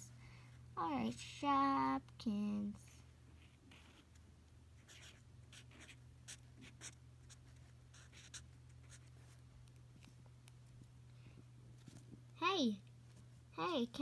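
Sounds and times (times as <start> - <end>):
steady low hum: 0.0 - 14.0
marker scratching on paper: 3.4 - 4.2, 4.8 - 9.3.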